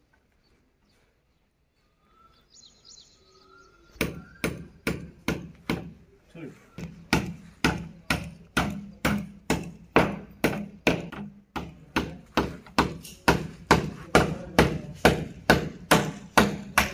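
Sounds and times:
hammer blows on masonry wall: 3.9 - 6.0, 6.8 - 16.9.

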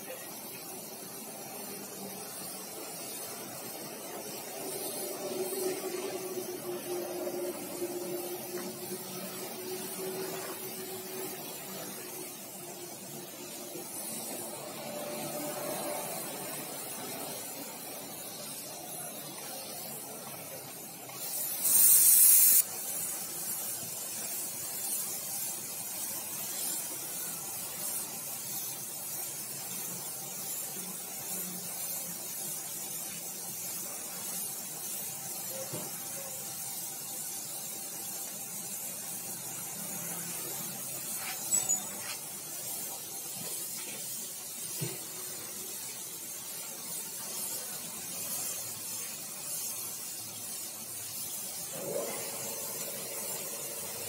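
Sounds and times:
spray gun hissing: 0.0 - 54.0.

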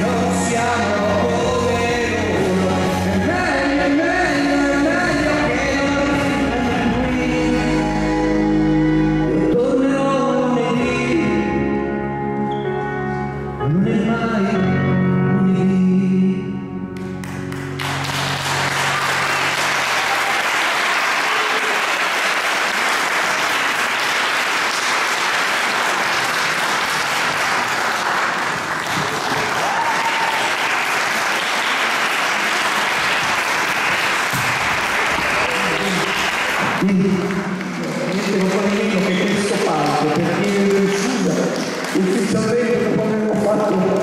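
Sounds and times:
music: 0.0 - 21.8, 28.8 - 44.0
audience applause: 17.2 - 42.7.

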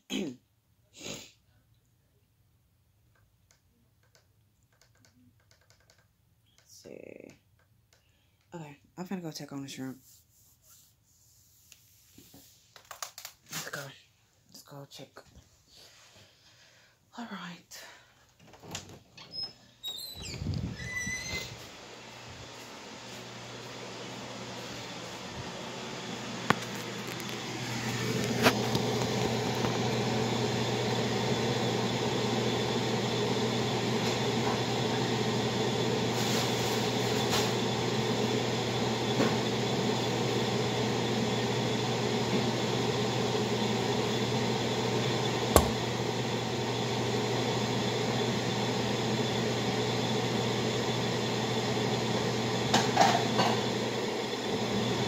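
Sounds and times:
appliance motor humming: 19.9 - 55.0.

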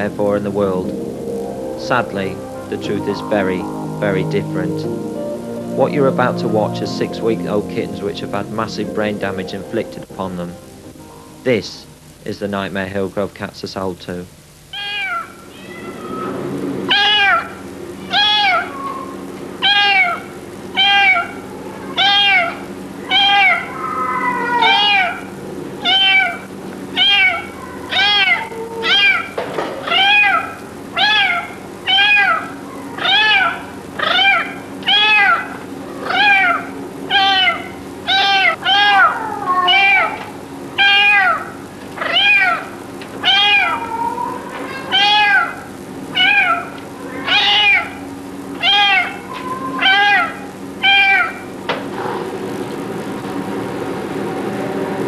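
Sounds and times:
steady low hum: 0.0 - 14.8
kitten meowing: 14.7 - 40.2, 40.8 - 45.6, 46.2 - 48.0, 48.6 - 51.4
another cat calling: 14.7 - 52.2.

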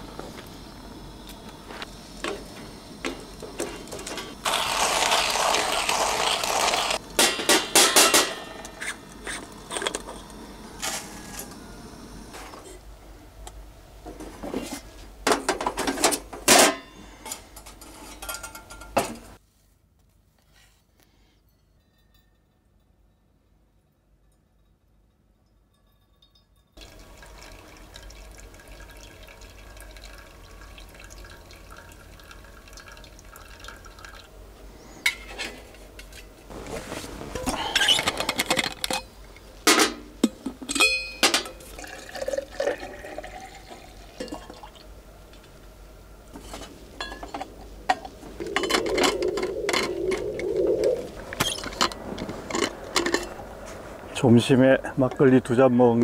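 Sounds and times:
liquid pouring and trickling: 25.8 - 34.4, 41.6 - 44.9.

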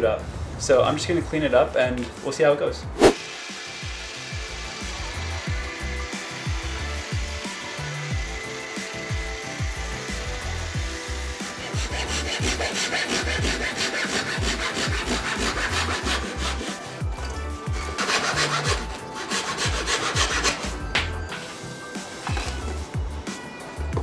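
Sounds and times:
background music with beat: 1.8 - 24.0
disc sander running: 3.2 - 12.9
hand saw cutting wood: 4.3 - 17.0, 17.6 - 21.1.

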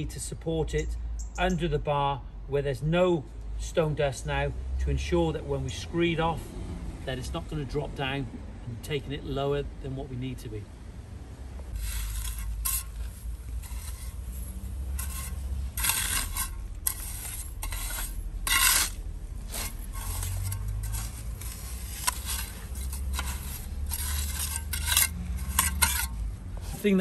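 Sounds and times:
trowel scraping stone dust: 11.7 - 27.0.

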